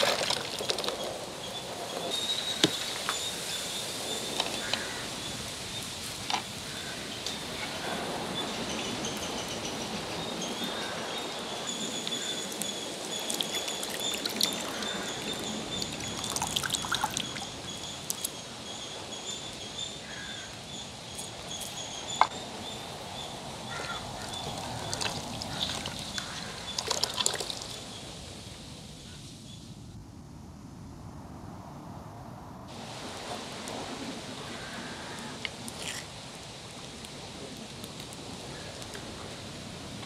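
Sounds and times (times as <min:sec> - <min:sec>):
water trickling and pouring: 0:11.6 - 0:18.3, 0:24.2 - 0:27.9.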